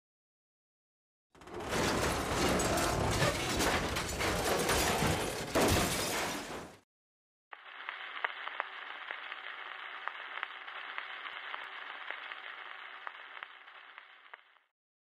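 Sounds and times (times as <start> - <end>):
crackling radio static: 7.5 - 14.7.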